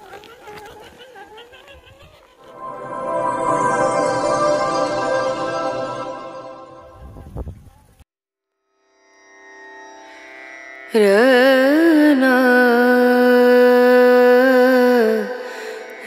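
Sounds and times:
held melodic line with sliding pitch: 0:02.4 - 0:07.4
soft drone: 0:02.5 - 0:07.4.

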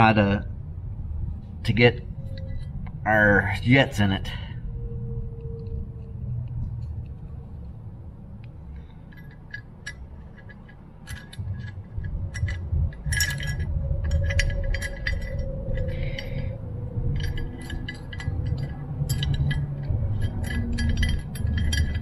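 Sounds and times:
steady low hum: 0:00.0 - 0:22.0
screwdriver clinking on metal: 0:09.1 - 0:22.0.

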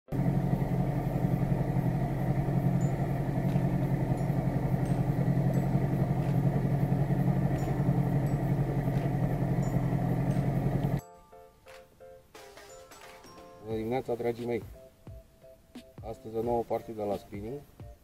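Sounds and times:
outboard motor running: 0:00.1 - 0:11.0.

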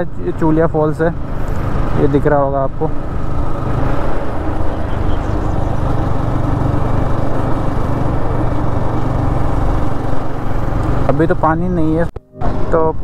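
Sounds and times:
motorcycle engine running: 0:00.0 - 0:13.0
wind rushing over microphone: 0:02.9 - 0:11.1.

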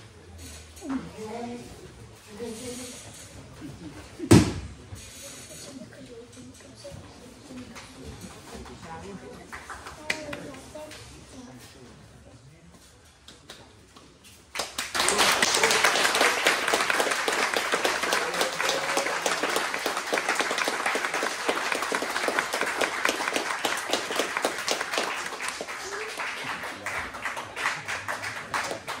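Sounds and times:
audience applauding: 0:14.5 - 0:29.0.

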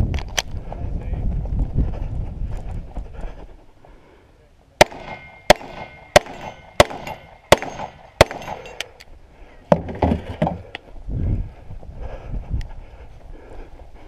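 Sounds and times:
handgun shots: 0:04.8 - 0:08.9.

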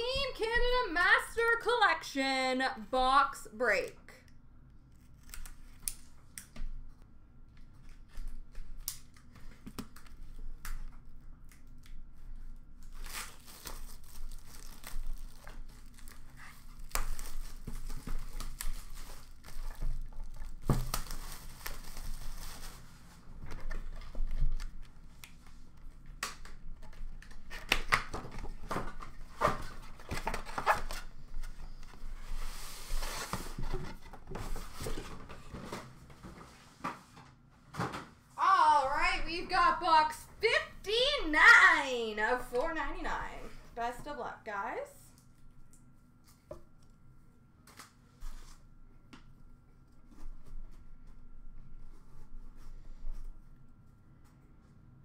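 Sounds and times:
plastic wrap crinkling and tearing: 0:11.4 - 0:24.8.

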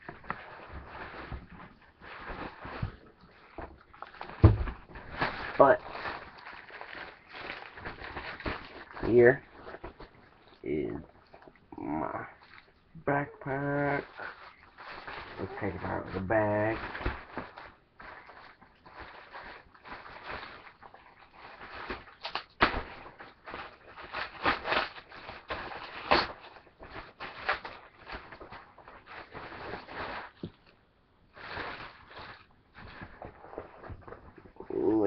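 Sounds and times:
bag rustling: 0:00.0 - 0:11.5, 0:13.6 - 0:30.7
knocks and bumps: 0:03.6 - 0:06.1.

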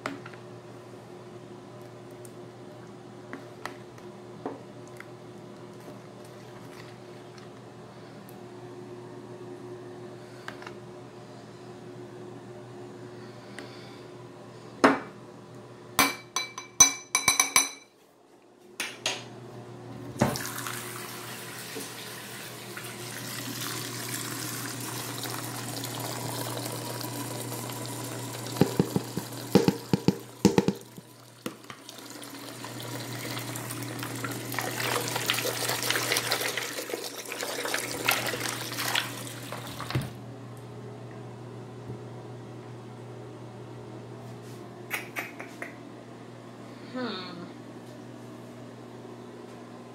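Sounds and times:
dishes clinking at a sink: 0:16.0 - 0:18.0
faucet running into basin: 0:20.2 - 0:40.1.

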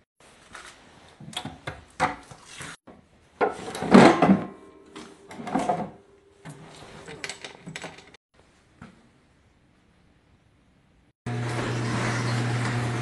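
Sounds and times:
handling knocks and scrapes: 0:00.3 - 0:08.2.

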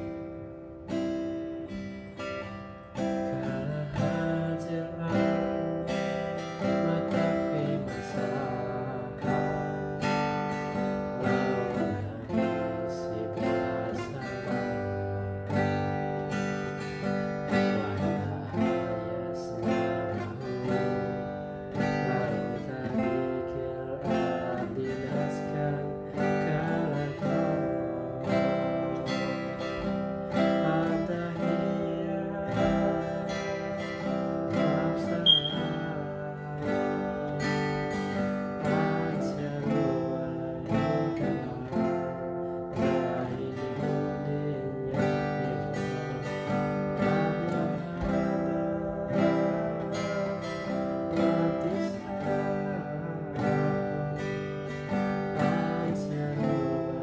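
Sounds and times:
acoustic guitar strumming: 0:00.0 - 0:57.0
sharp high-pitched blip: 0:35.1 - 0:36.0.

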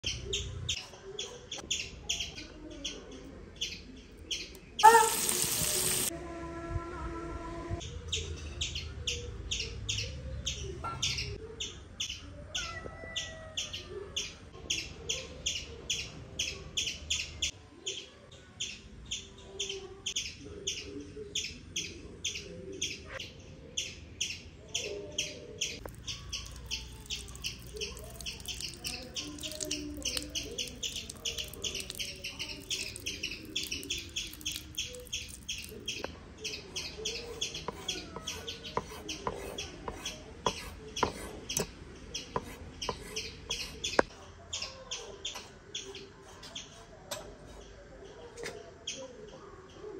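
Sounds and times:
bird high chirps: 0:03.6 - 0:06.1, 0:25.2 - 0:39.7.

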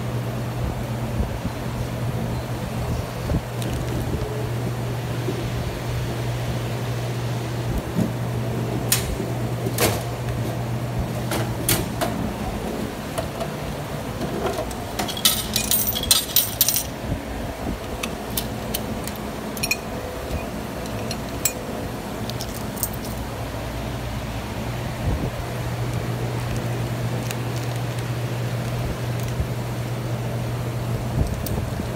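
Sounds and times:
vending machine motor hum: 0:00.0 - 0:31.9
bottle rattling clatter: 0:15.0 - 0:16.9
mechanism clicks and knocks: 0:17.9 - 0:23.2.

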